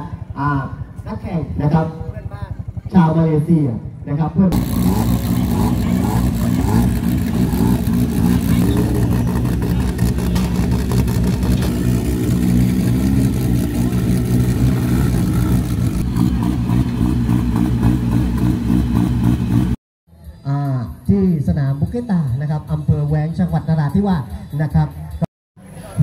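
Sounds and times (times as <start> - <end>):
vehicle engine droning: 0.0 - 19.8.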